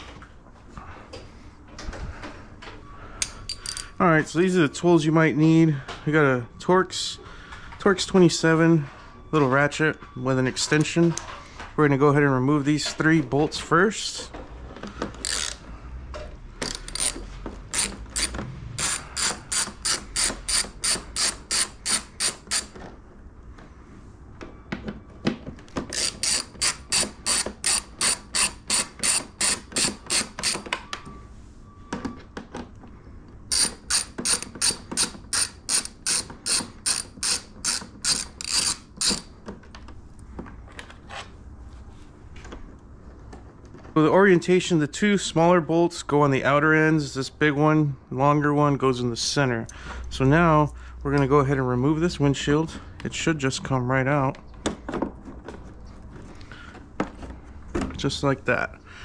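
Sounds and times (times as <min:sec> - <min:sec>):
hand ratchet clicking: 0:15.2 - 0:15.6, 0:16.6 - 0:22.8, 0:25.9 - 0:30.7, 0:33.5 - 0:39.3.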